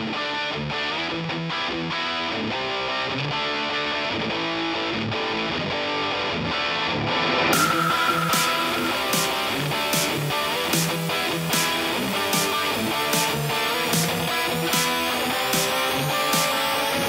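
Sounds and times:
strummed guitar music: 0.0 - 17.0
hiss with high tone: 6.9 - 11.8.

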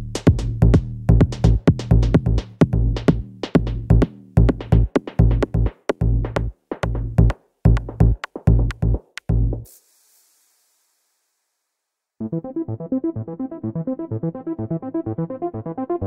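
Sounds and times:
electronic music with drum beat: 0.0 - 10.4
faint hiss: 9.7 - 12.2.

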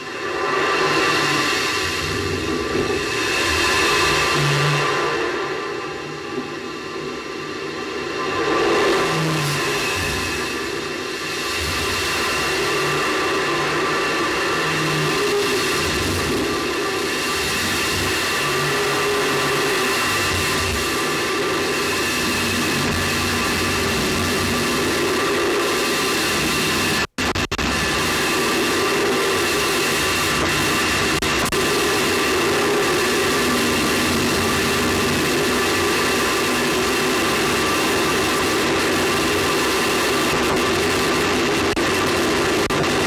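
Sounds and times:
rocket roaring rumble: 0.0 - 27.0
constant hum: 0.0 - 43.0.

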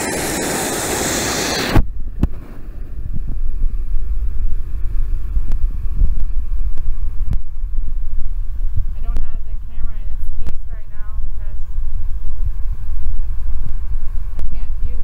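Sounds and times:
water rushing over weir: 0.0 - 1.8
wind buffeting microphone: 0.0 - 15.0.

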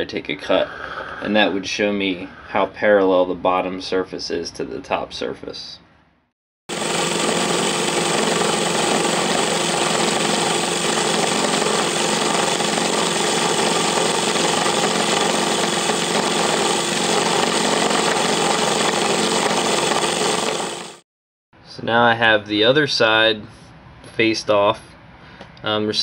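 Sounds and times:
end mill cutting steel: 6.7 - 21.0
motor hum: 6.7 - 21.0.

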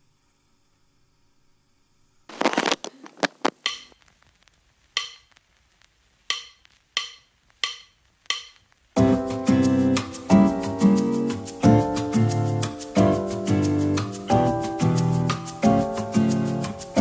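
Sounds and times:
background music track: 6.3 - 17.0.

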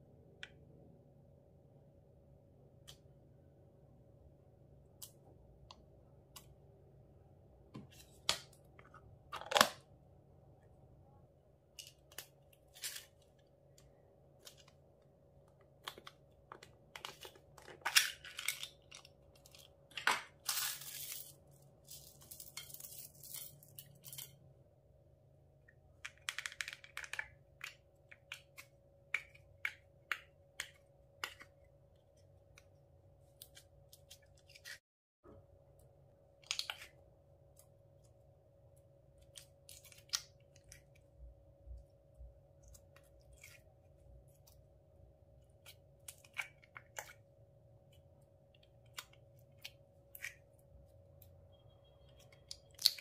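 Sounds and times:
plastic containers being opened: 7.9 - 9.9.

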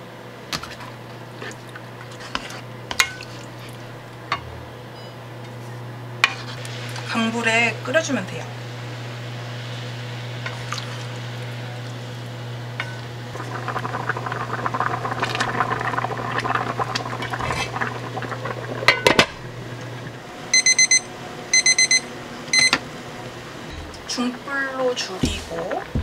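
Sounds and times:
steady low hum: 0.0 - 26.0
stew bubbling in a pan: 0.6 - 4.3, 10.3 - 20.2, 23.8 - 26.0
kitchen timer beeping: 20.5 - 22.8.

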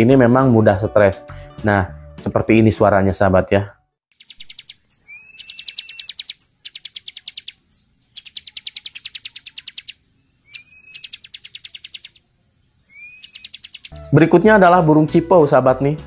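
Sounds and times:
bird singing rapid high notes: 4.1 - 12.2, 12.8 - 14.7
bird short whistle: 12.9 - 14.0.

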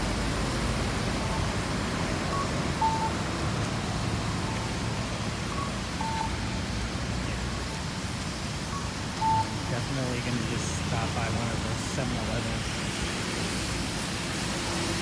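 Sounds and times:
street traffic: 0.0 - 15.0
two-note electronic beep: 2.3 - 3.2, 5.5 - 6.4, 8.7 - 9.6.

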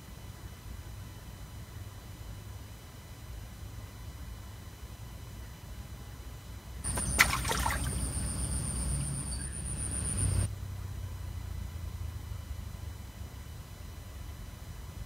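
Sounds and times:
low outdoor rumble: 6.8 - 13.0
high thin whine: 6.9 - 10.5.

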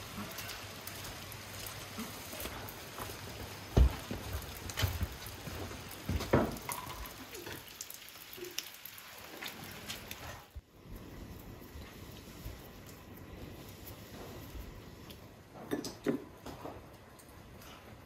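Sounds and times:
drops dripping from metal roof: 0.0 - 10.2
light rain: 0.0 - 18.0.

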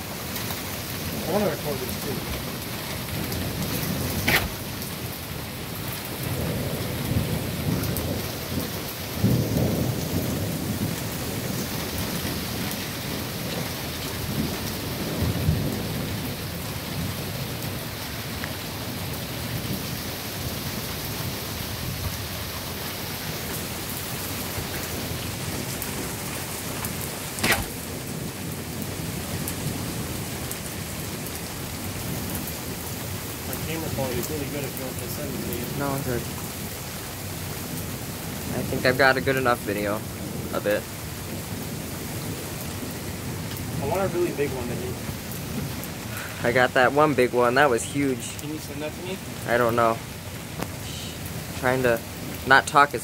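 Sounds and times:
steady rain: 0.0 - 53.0
low rolling thunder: 1.0 - 18.0, 18.8 - 47.8
sharp knock: 27.4 - 27.8.

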